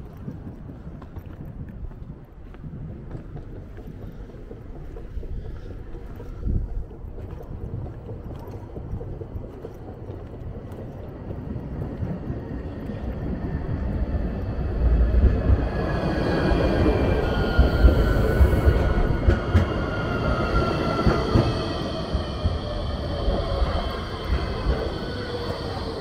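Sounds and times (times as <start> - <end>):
tram rumble: 0.0 - 26.0
tram electric whine dropping in pitch: 13.0 - 26.0.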